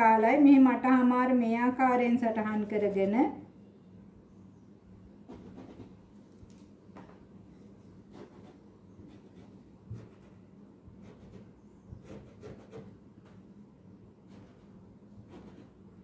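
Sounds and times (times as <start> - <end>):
low steady hum: 0.0 - 16.0
pencil marking: 5.3 - 6.0, 8.1 - 10.4, 11.0 - 13.0, 14.3 - 15.8.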